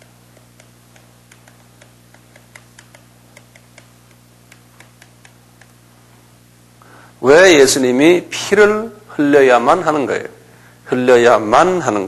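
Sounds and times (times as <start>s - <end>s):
steady low hum: 0.0s - 12.0s
faint light ticks: 0.3s - 5.8s.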